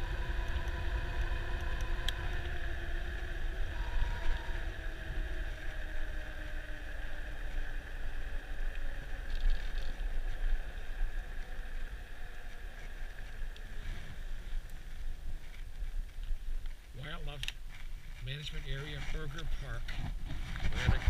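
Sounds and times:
electric hub motor whine: 0:00.0 - 0:19.9
wind buffeting microphone: 0:17.9 - 0:21.0.

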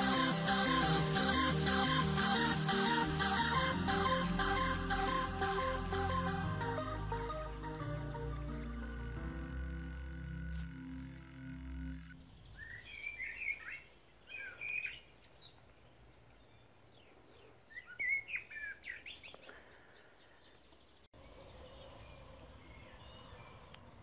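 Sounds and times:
faint outdoor background: 0:00.0 - 0:24.0
birds chirping and twittering: 0:11.9 - 0:24.0.

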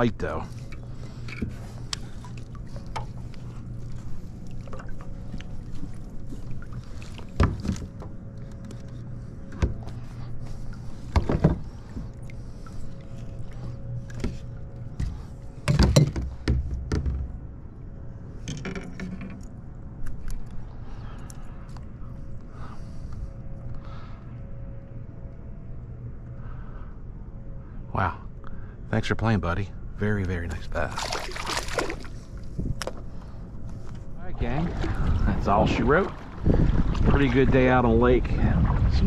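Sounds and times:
steady low hum: 0:00.0 - 0:39.0
water splashing: 0:30.7 - 0:32.3, 0:34.4 - 0:39.0.

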